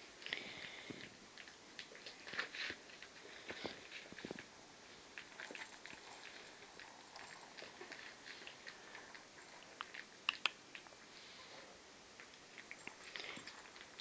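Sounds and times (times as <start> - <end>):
puppies clicking and ticking: 5.1 - 11.0.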